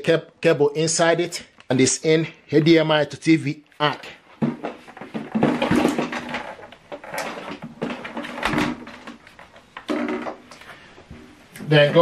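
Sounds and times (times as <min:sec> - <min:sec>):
plastic soundbar knocking and scraping: 0:04.4 - 0:10.5.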